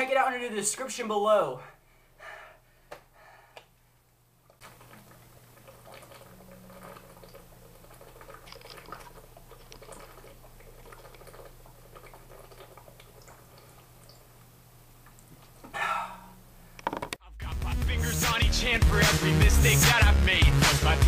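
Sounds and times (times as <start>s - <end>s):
person drinking from bottle: 4.5s - 13.9s.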